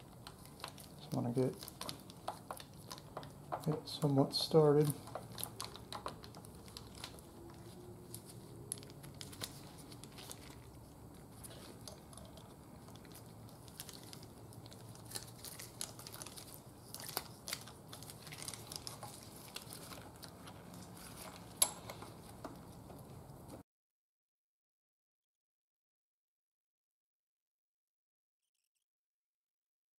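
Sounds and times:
rustling of gloves: 0.0s - 23.6s.

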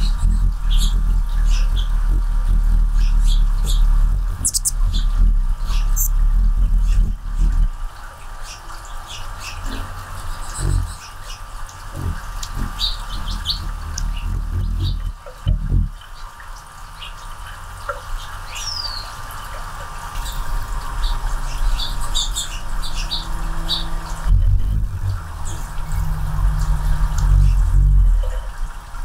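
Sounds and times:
low thumps and rumble: 0.0s - 7.9s, 11.7s - 16.1s, 24.2s - 28.6s
hummingbird chips and squeaks: 3.0s - 6.2s.

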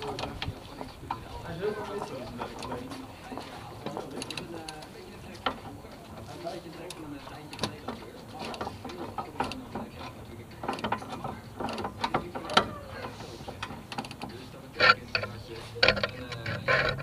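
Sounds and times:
ratchet wrench clicking: 13.6s - 17.0s.

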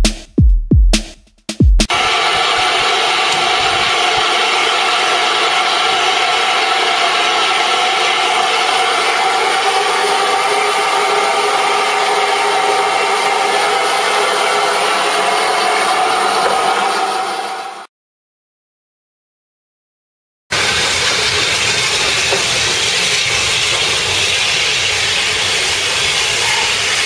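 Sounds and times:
steam locomotive hissing: 1.9s - 17.9s, 20.5s - 27.0s.

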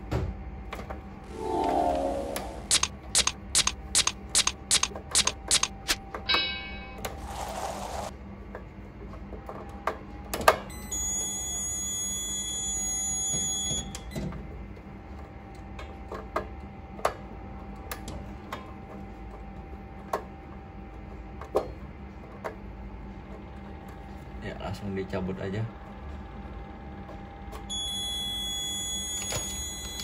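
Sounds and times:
steady high electronic tone: 1.2s - 4.8s, 6.3s - 7.1s
screwdriver and wire clicks: 2.7s - 6.0s.

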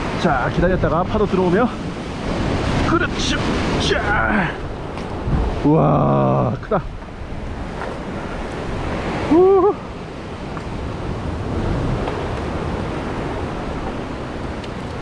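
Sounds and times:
surf washing against rocks: 0.0s - 15.0s
person crying out: 3.9s - 4.6s, 9.2s - 9.9s.

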